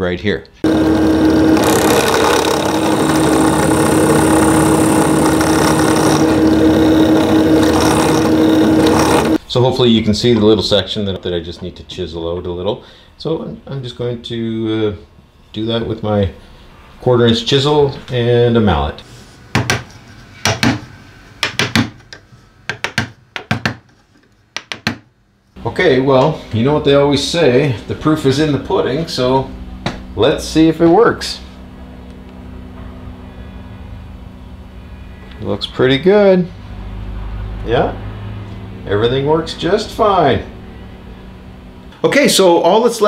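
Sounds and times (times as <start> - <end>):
drill bit cutting wood: 0.6 - 9.4
drill press motor hum: 0.6 - 9.4.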